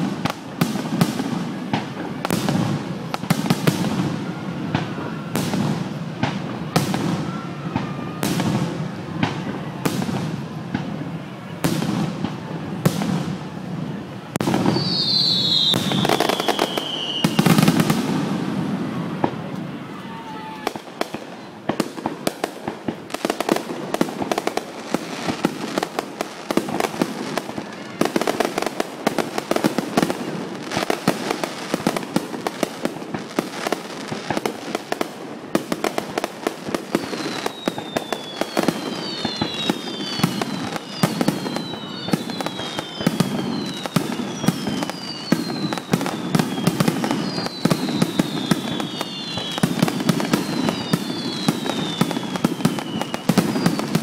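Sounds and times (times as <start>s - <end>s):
fireworks crackling: 0.0s - 54.0s
firework whistles falling in pitch: 14.4s - 18.0s, 36.8s - 54.0s.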